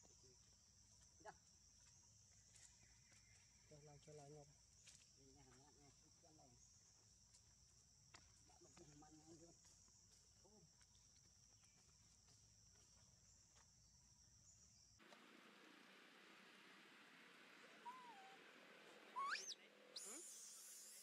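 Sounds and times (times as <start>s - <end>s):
faint hiss: 15.0s - 21.0s
faint wavering calls: 17.5s - 21.0s
high-pitched insect drone: 19.2s - 21.0s.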